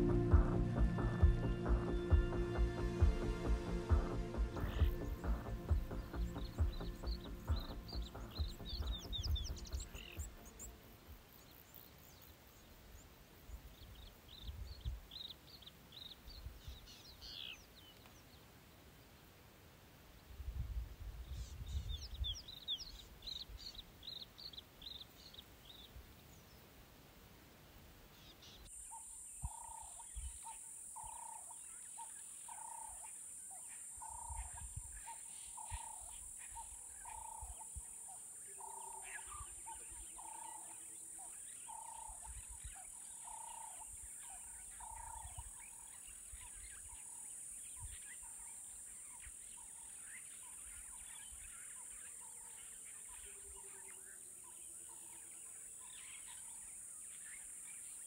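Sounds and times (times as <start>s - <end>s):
high-pitched insect drone: 28.8s - 31.5s, 34.0s - 47.2s.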